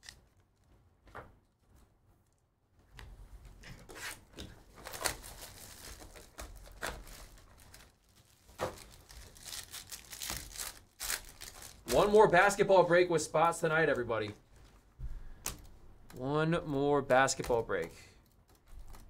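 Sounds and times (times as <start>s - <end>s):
packaging crinkling and tearing: 4.0s - 12.6s.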